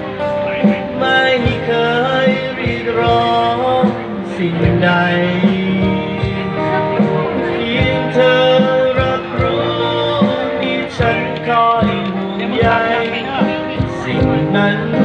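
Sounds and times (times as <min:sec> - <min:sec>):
man singing: 0:00.0 - 0:15.0
percussion beat: 0:00.0 - 0:15.0
strummed acoustic guitar: 0:00.0 - 0:15.0.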